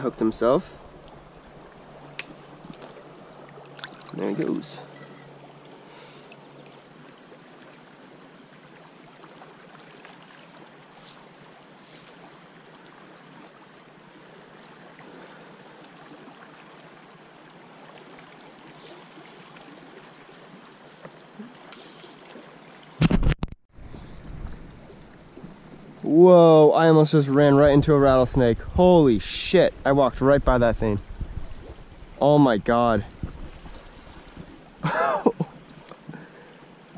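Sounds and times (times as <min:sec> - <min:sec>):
river water rushing: 0:00.0 - 0:22.9.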